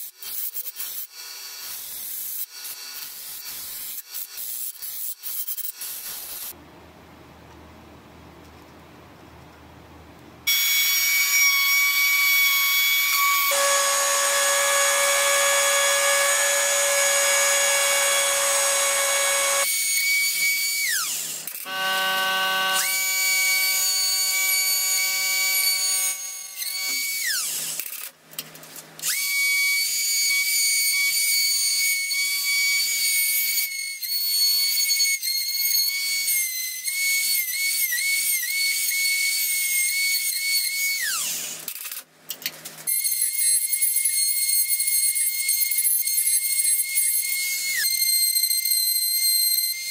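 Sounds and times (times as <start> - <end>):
rotary tool cutting wood: 10.5 - 28.1.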